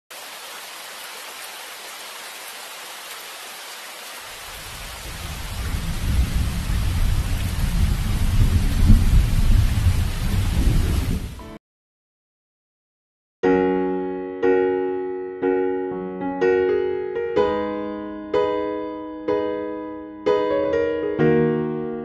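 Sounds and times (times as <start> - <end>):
rain hiss: 0.1 - 11.4
rolling thunder rumble: 4.6 - 11.4.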